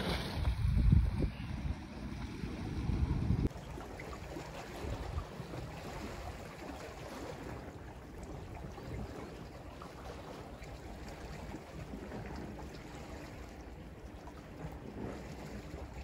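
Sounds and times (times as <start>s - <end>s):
wind buffeting microphone: 0.0s - 12.5s
sea waves washing on shore: 0.0s - 16.0s.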